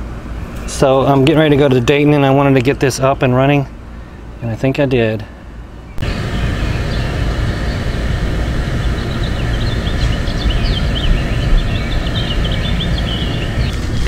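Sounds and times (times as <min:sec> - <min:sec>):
songbirds chirping: 0:00.3 - 0:14.0
wind on microphone: 0:06.0 - 0:14.0.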